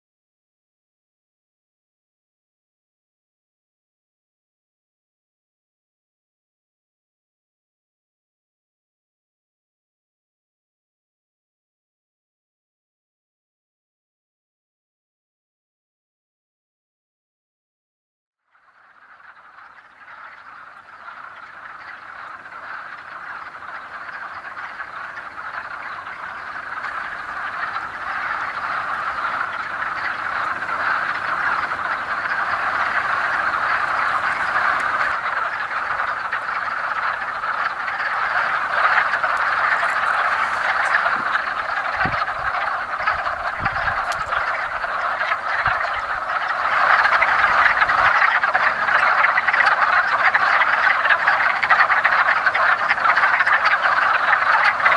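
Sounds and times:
frog chorus: 0:18.4 - 0:54.9.

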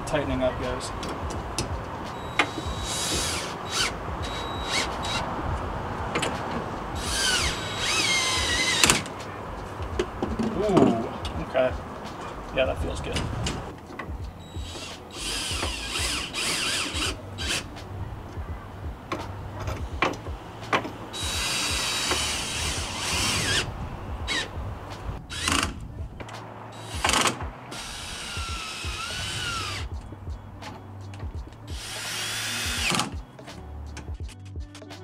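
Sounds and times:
power drill whining: 0:02.2 - 0:05.2, 0:07.0 - 0:09.1, 0:14.5 - 0:17.7, 0:21.2 - 0:23.7, 0:25.3 - 0:25.8, 0:26.8 - 0:29.9, 0:31.8 - 0:33.1.

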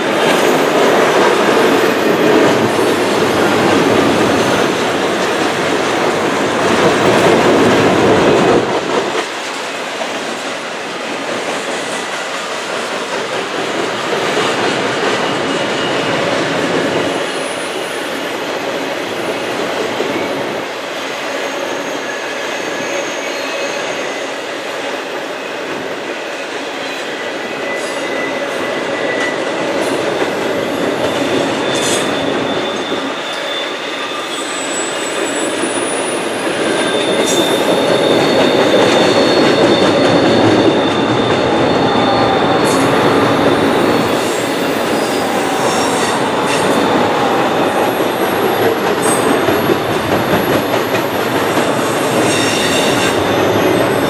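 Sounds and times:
freight cars rumbling on rails: 0:00.0 - 0:20.6, 0:35.3 - 0:54.0
wheel squeals: 0:30.8 - 0:54.0.

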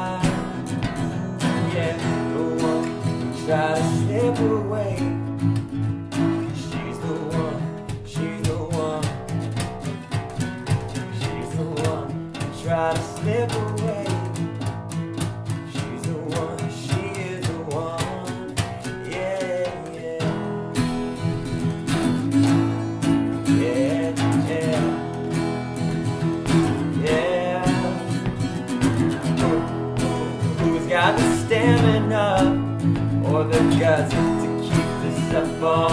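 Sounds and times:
acoustic guitars strummed: 0:00.0 - 0:35.9.

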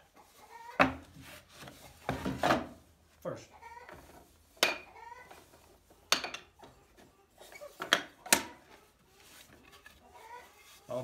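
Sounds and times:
wooden knocks and clunks: 0:00.8 - 0:01.1, 0:02.0 - 0:02.8.

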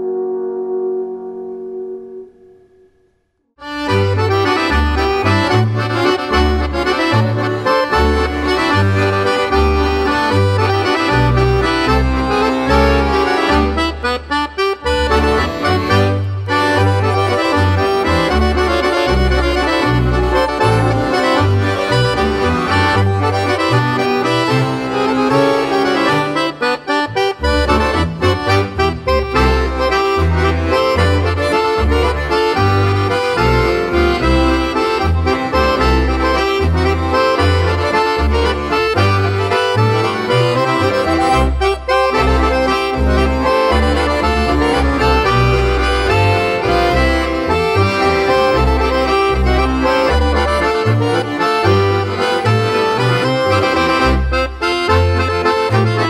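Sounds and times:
bass line: 0:00.0 - 0:56.0
accordion folk music: 0:03.6 - 0:56.0.

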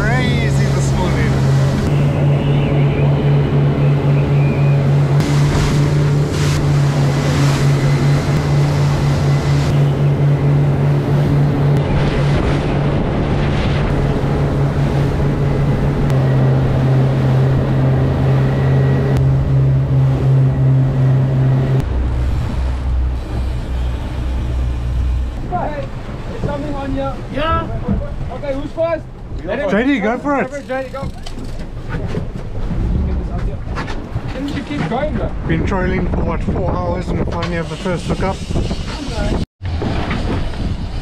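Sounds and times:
hull slapping through swell: 0:00.0 - 0:25.2
outboard motors running: 0:00.0 - 0:35.7.

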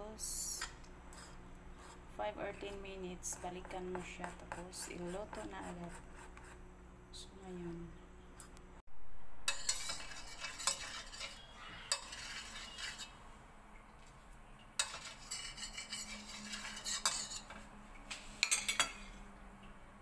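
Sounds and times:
metal spoon scraping frying pan: 0:09.5 - 0:13.2, 0:14.8 - 0:17.6, 0:18.4 - 0:19.2.

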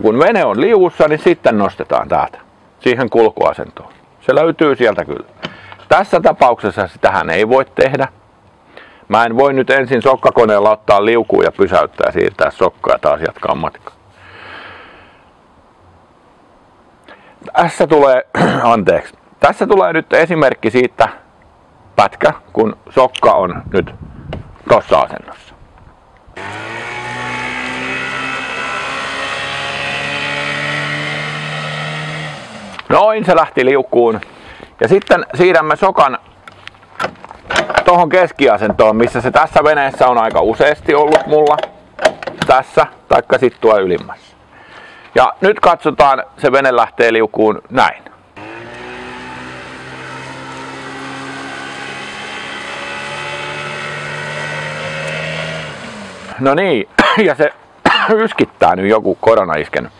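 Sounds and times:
outboard motor at full throttle: 0:26.4 - 0:32.8, 0:48.4 - 0:56.4.

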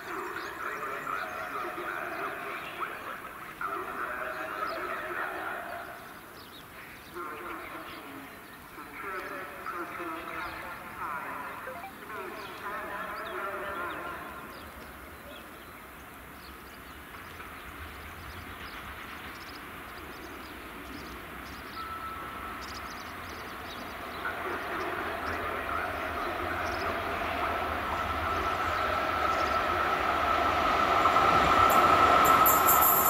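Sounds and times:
electric locomotive approaching: 0:00.0 - 0:33.0
locomotive whine: 0:21.6 - 0:33.0.

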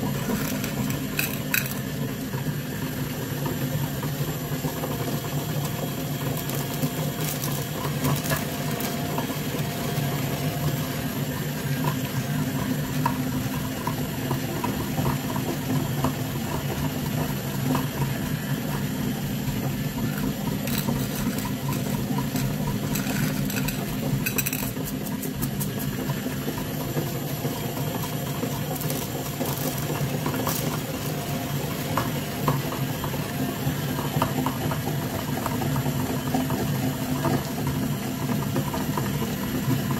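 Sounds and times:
meat grinder humming: 0:00.0 - 0:39.9
candies rattling: 0:00.2 - 0:01.9, 0:20.2 - 0:25.8, 0:28.7 - 0:30.9.

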